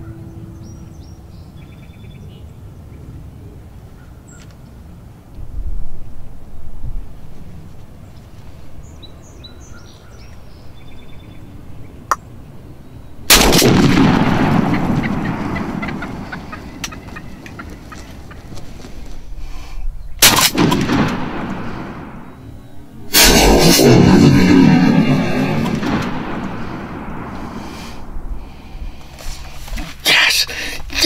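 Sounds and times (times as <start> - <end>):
shotgun blast echoing: 13.3 - 16.4, 20.2 - 22.4, 25.6 - 28.1
turkey calls: 14.5 - 19.1
bird wings flopping on ground: 16.8 - 19.2.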